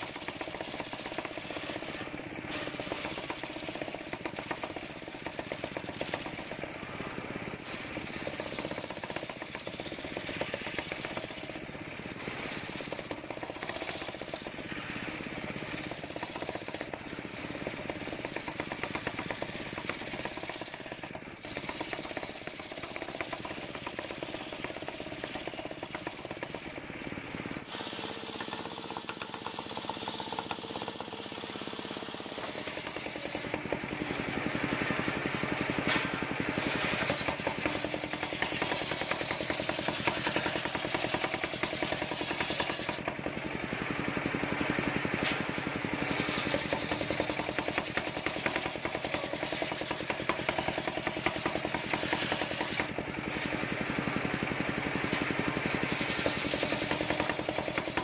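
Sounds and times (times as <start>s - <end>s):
circular saw cutting wood: 0.0s - 58.0s.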